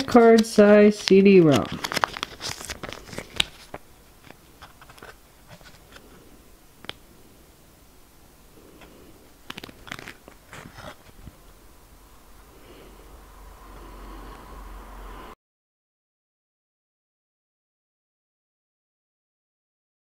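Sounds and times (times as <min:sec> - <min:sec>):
plastic sleeve crinkling: 0:00.0 - 0:07.0, 0:08.6 - 0:11.6.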